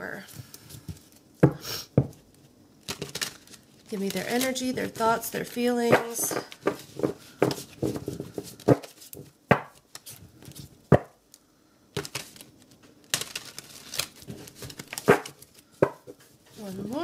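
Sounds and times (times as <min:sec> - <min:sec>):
cards being shuffled: 0:02.3 - 0:11.1, 0:12.0 - 0:17.0
deck of cards slapping: 0:05.8 - 0:11.2, 0:13.1 - 0:16.2.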